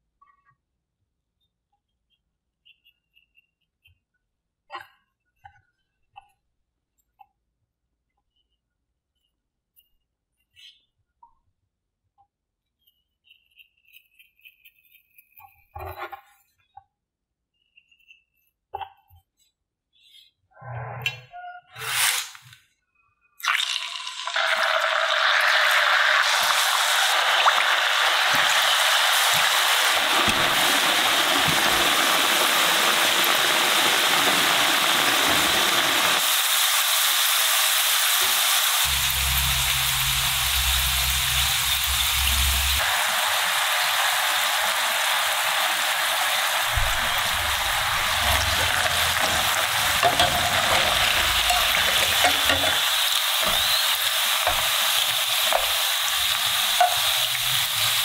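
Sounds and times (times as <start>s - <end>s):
oil sizzling and bubbling: 23.4s - 58.0s.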